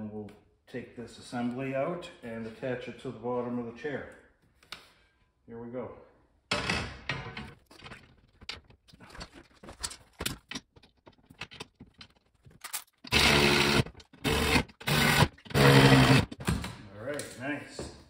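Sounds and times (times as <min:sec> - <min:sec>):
metal plate and screws rattling: 0:06.5 - 0:13.2
power drill driving screws: 0:13.1 - 0:16.4.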